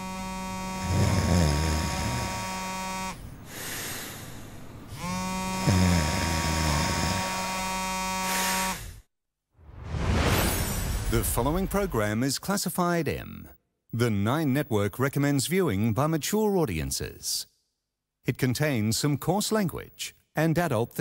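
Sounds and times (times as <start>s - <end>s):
phone vibrating on glass: 0.0s - 3.3s, 4.9s - 8.9s.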